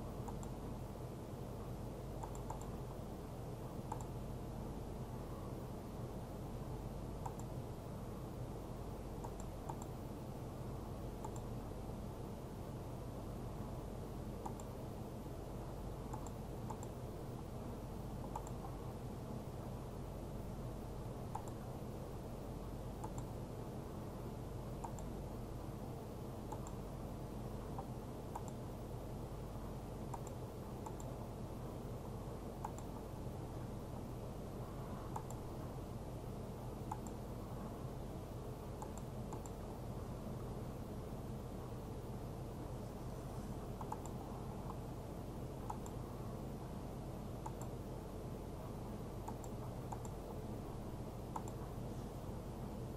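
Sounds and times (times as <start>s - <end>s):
room and equipment hum: 0.0s - 52.9s
computer mouse clicks: 0.2s - 0.6s, 2.2s - 2.8s, 3.8s - 4.2s, 7.2s - 7.6s, 9.2s - 10.0s, 11.2s - 11.6s, 14.4s - 14.8s, 16.1s - 17.0s, 18.2s - 18.8s, 21.3s - 21.7s, 23.0s - 23.3s, 24.8s - 25.1s, 26.5s - 26.8s, 27.7s - 28.6s, 30.1s - 31.2s, 32.6s - 33.0s, 35.0s - 35.5s, 36.8s - 37.2s, 38.8s - 39.6s, 43.8s - 44.8s, 45.6s - 46.0s, 47.4s - 47.8s, 49.2s - 50.2s, 51.3s - 51.7s.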